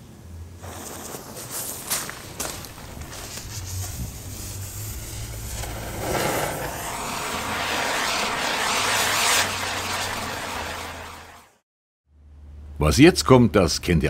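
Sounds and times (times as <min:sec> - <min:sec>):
firework wheel hissing: 0:00.6 - 0:11.6.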